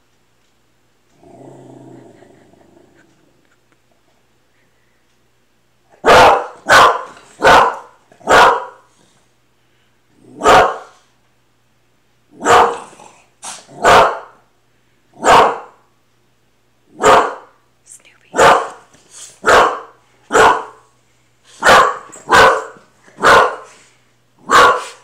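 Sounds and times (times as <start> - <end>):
dog barking: 6.0 - 8.9, 10.4 - 11.0, 12.4 - 12.9, 13.8 - 14.4, 15.2 - 15.8, 17.0 - 17.6, 18.3 - 20.9, 21.6 - 23.8, 24.4 - 25.0.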